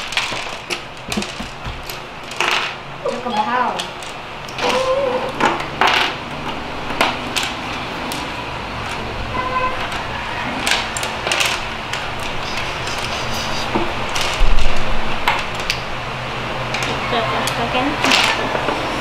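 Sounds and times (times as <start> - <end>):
plastic bricks clicking and rattling: 9.8 - 13.1.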